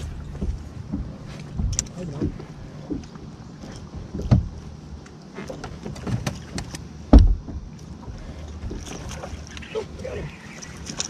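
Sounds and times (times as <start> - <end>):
low rumble: 0.0 - 5.1
dull knocks on boat deck: 4.0 - 4.6, 7.1 - 7.7.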